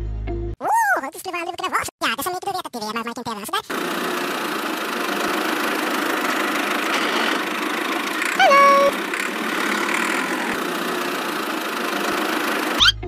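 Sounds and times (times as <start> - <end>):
small tractor engine running: 3.7 - 13.0
loud horn honk: 8.4 - 9.0.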